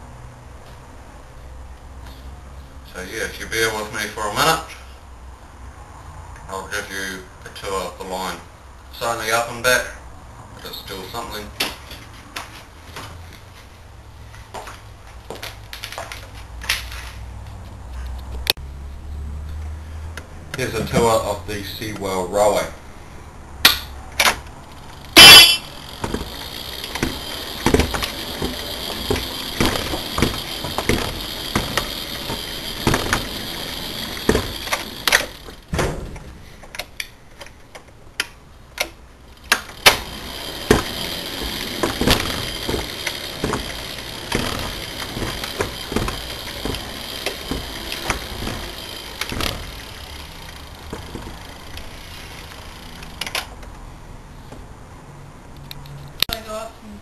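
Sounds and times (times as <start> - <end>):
wheels clicking on wooden track: 24.7 - 35.7, 39.4 - 53.4
toy train horn toot: 25.2 - 25.7.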